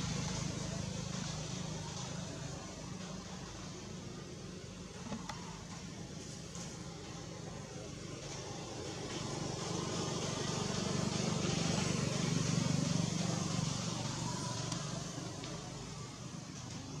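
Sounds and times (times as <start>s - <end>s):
motor vehicle passing: 7.7s - 17.0s.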